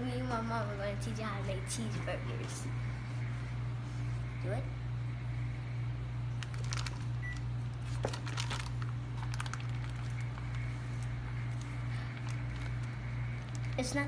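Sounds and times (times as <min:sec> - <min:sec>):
steady low hum: 0:00.0 - 0:14.0
plastic wrap crinkling: 0:06.4 - 0:14.0.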